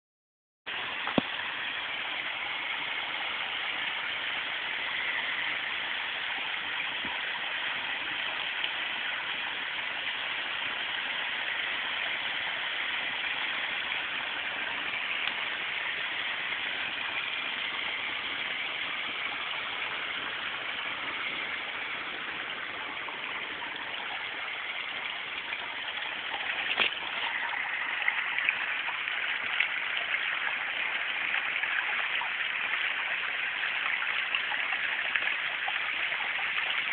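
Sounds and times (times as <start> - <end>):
waterfall splashing into pond: 0.7 - 36.9.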